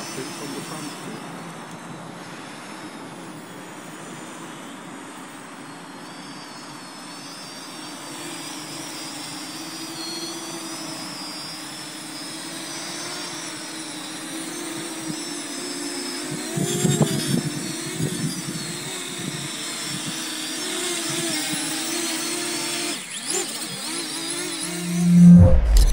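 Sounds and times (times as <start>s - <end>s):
drone propellers buzzing: 21.3s - 25.9s.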